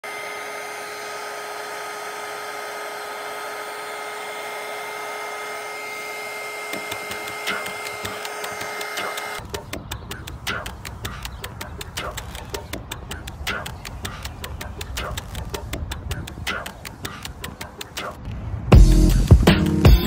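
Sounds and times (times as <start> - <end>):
hair dryer blowing air: 0.0 - 9.4
faint steady whine: 0.1 - 9.4.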